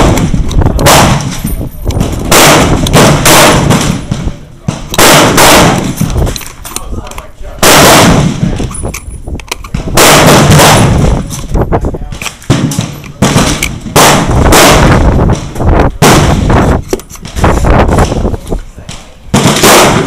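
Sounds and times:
faint gunshots: 0:00.0 - 0:06.3, 0:07.6 - 0:08.7, 0:09.7 - 0:11.3, 0:12.0 - 0:18.2, 0:18.8 - 0:20.0
loud gunshots echoing: 0:00.0 - 0:06.4, 0:07.5 - 0:08.9, 0:09.6 - 0:11.4, 0:12.0 - 0:20.0.

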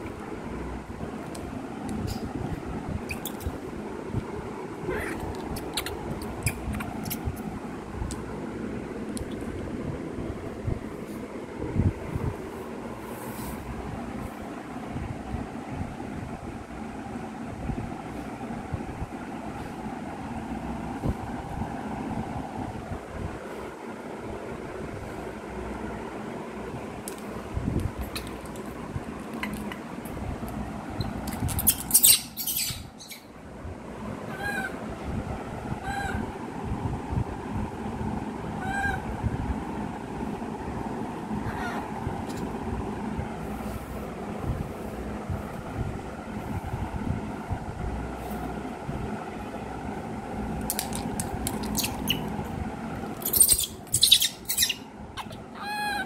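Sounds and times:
baby monkey squeaky call: 0:31.5 - 0:33.3, 0:51.6 - 0:52.3, 0:53.2 - 0:56.0.

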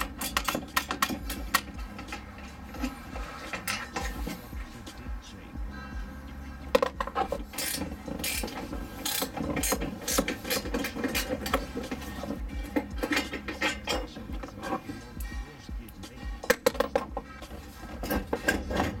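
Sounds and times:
metal clicks and clinks: 0:00.0 - 0:02.9.

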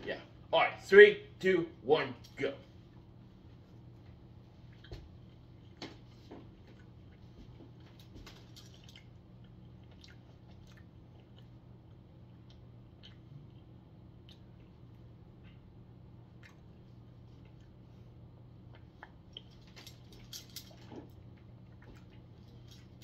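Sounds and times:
man chewing: 0:04.6 - 0:14.9, 0:16.3 - 0:23.0
mouth clicks and smacks: 0:12.4 - 0:14.7.

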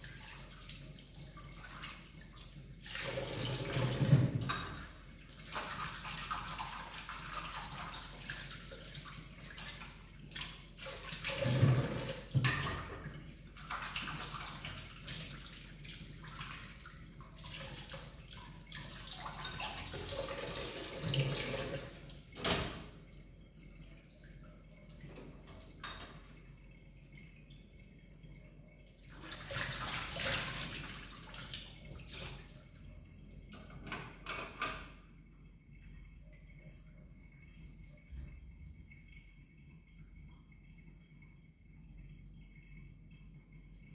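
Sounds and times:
tap water splashing into sink: 0:00.0 - 0:26.5, 0:33.4 - 0:35.0
ceramic dishes clinking: 0:12.4 - 0:13.0.

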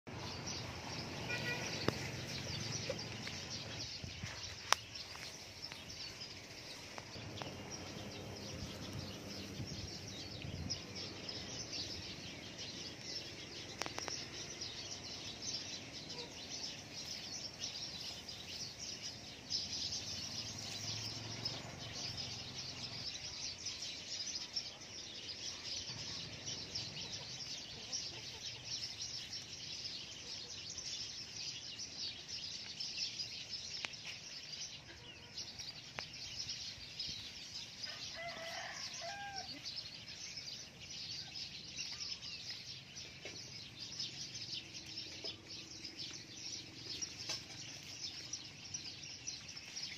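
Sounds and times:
birds chirping: 0:00.1 - 0:49.9
chickens clucking: 0:26.3 - 0:29.4.

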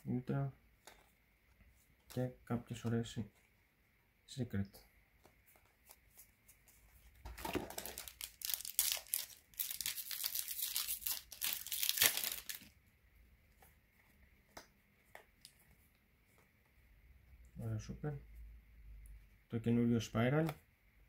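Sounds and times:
foil wrapper crinkling and tearing: 0:07.6 - 0:12.7.

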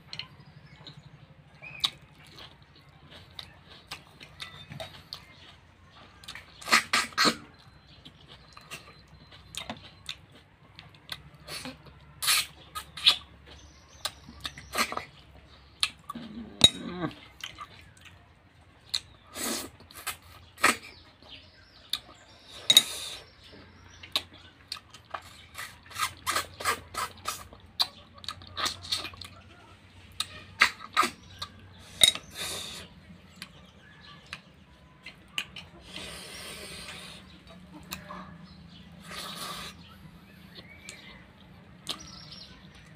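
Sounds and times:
wet smacking and sucking lips: 0:11.5 - 0:13.2.

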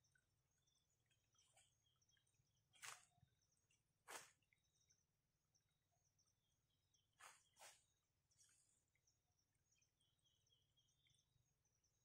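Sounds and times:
soft rustles: 0:07.2 - 0:08.8.

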